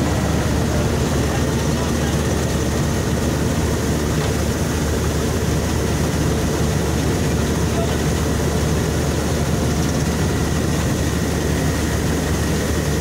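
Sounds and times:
auger discharging grain: 0.0s - 13.0s
combine harvester engine hum: 0.0s - 13.0s.

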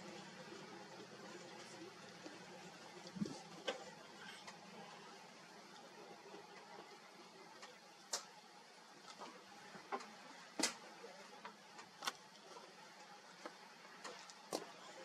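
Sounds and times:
low hiss: 0.0s - 15.0s.

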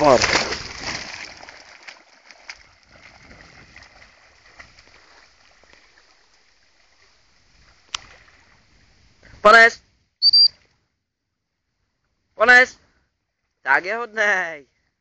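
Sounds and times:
dog paddling splashing water: 0.0s - 8.8s.

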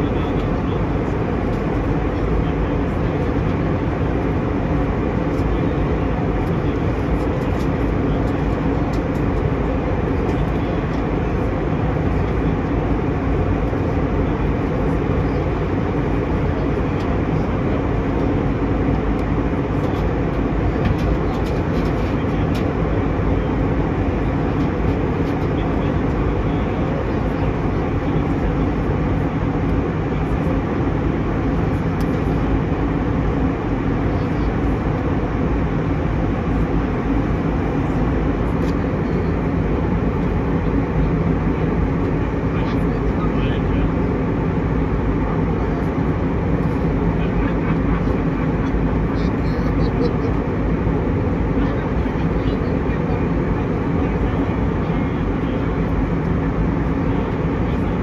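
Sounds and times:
airplane cabin engine roar: 0.0s - 58.0s.

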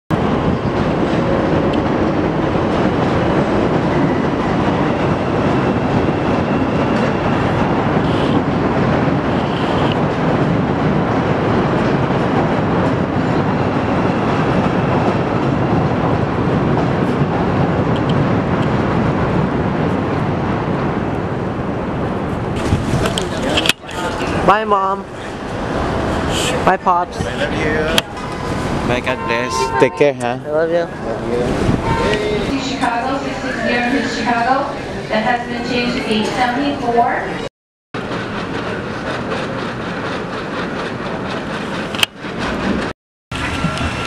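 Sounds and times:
faint high squeal: 28.2s - 30.2s
train wheels on steel rails: 38.0s - 44.0s.

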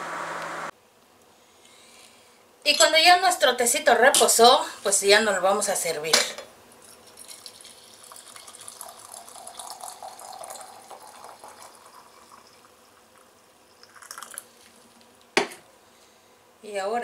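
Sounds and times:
tea pouring into teapot: 6.8s - 15.1s.

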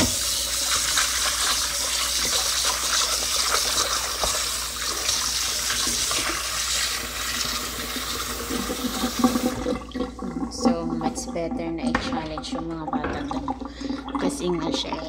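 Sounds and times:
tap running into metal sink: 0.0s - 1.3s, 11.8s - 13.8s.

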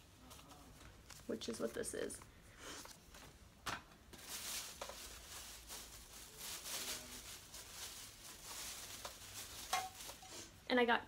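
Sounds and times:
plastic bag rustling: 4.1s - 10.6s.

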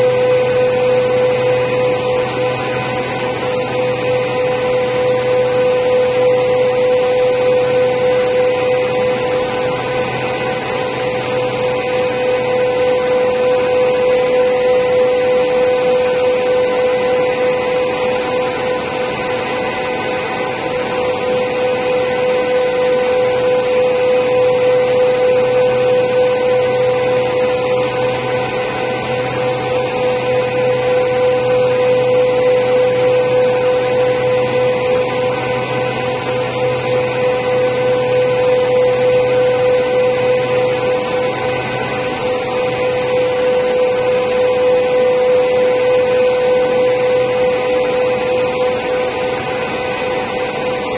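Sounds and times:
machine noise: 0.0s - 50.9s
planer moulder high whine: 0.0s - 50.9s.

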